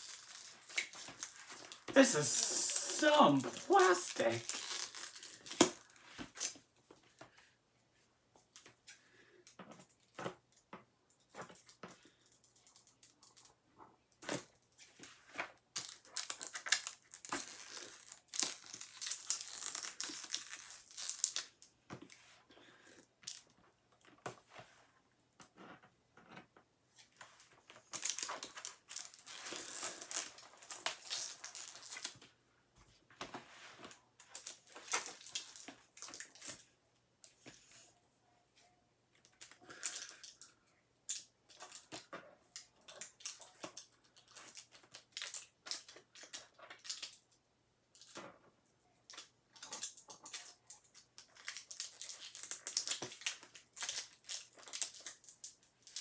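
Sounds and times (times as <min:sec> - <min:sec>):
plastic wrap crinkling and tearing: 0:00.0 - 0:06.6, 0:15.7 - 0:21.6, 0:27.8 - 0:32.2, 0:34.3 - 0:36.6, 0:42.6 - 0:47.2, 0:49.1 - 0:56.0.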